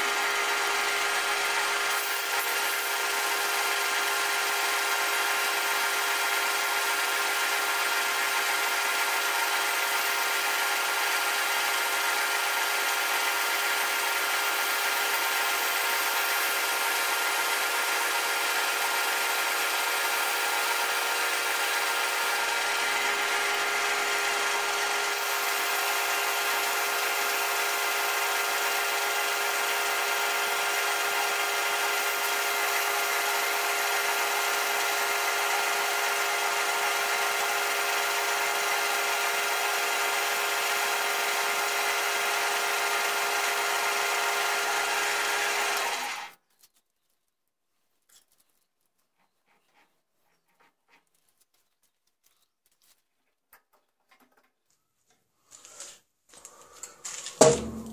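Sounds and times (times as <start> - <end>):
lathe motor whine: 0.0 - 46.3.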